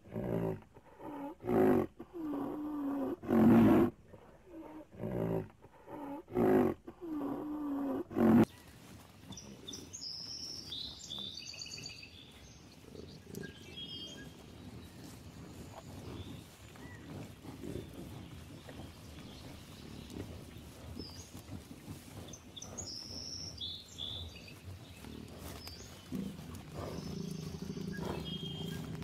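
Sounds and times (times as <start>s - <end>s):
small birds chirping: 8.2s - 29.0s
rhinoceros calling: 12.7s - 29.0s.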